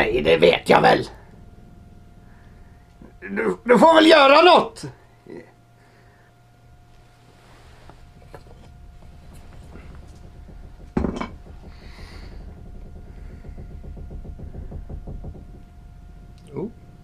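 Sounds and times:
low hum: 0:00.0 - 0:17.0
sharp clattering knock: 0:08.2 - 0:17.0.

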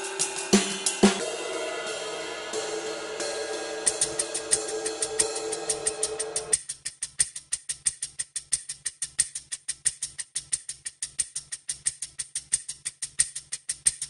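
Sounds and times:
background music melody: 0:00.0 - 0:06.6
fast percussion ticking: 0:00.0 - 0:14.0.

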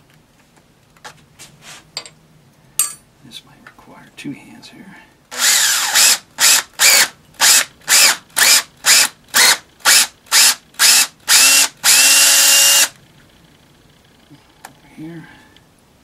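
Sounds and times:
cordless drill boring into metal: 0:05.3 - 0:12.9.

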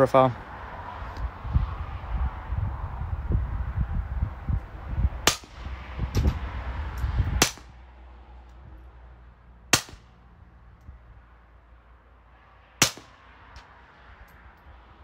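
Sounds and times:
suppressed pistol shots: 0:07.4 - 0:07.7, 0:09.7 - 0:10.1, 0:12.8 - 0:13.2.

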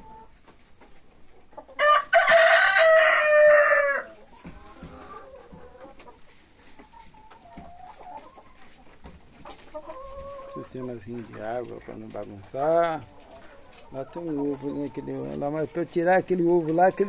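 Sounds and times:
hens clucking softly: 0:00.0 - 0:17.0
rooster crowing: 0:01.8 - 0:04.1.

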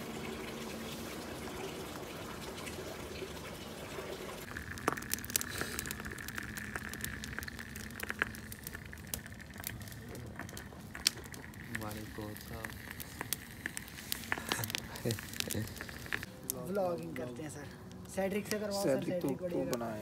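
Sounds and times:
fire crackling and popping: 0:00.4 - 0:20.0
steady fire hiss: 0:04.0 - 0:20.0.

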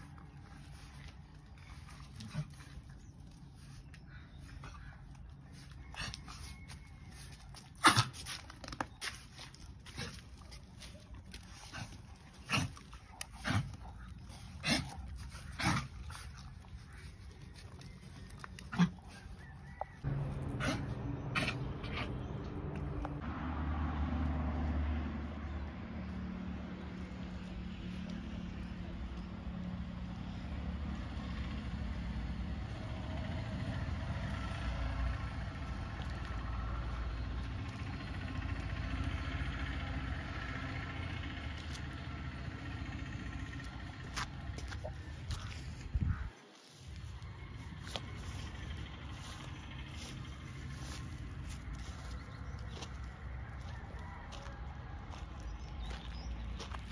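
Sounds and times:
engine idling: 0:19.3 - 0:23.3, 0:25.2 - 0:46.3, 0:47.1 - 0:56.9.

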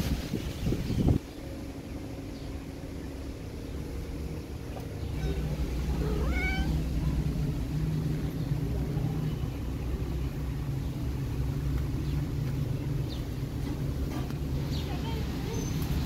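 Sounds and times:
cat purring: 0:05.2 - 0:08.1.

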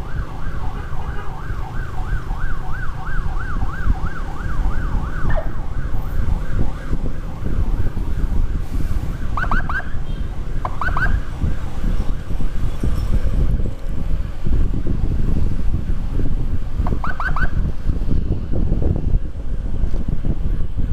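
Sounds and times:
rising siren whoops: 0:00.0 - 0:11.8, 0:17.0 - 0:17.7
emergency siren yelping: 0:00.0 - 0:12.3, 0:16.9 - 0:17.7
wind on microphone: 0:00.0 - 0:20.9.

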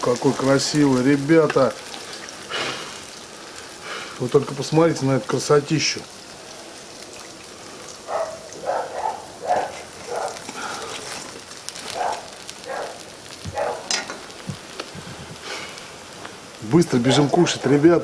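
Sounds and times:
oil dripping into pot: 0:00.0 - 0:04.6, 0:05.3 - 0:08.6
deep-frying oil sizzling: 0:00.0 - 0:18.0.

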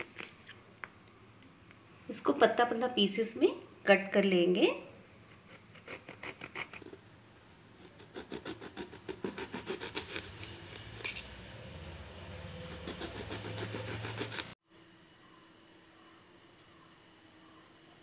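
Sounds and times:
knife slicing eggplant: 0:07.8 - 0:11.4, 0:12.7 - 0:14.6.

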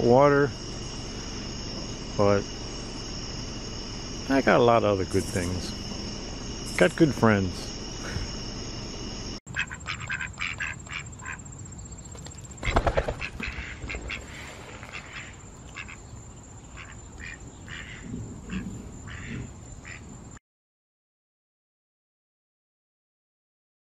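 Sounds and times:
insects trilling: 0:00.0 - 0:20.4
duck quacking: 0:09.5 - 0:11.4, 0:12.6 - 0:16.0, 0:16.7 - 0:20.0.

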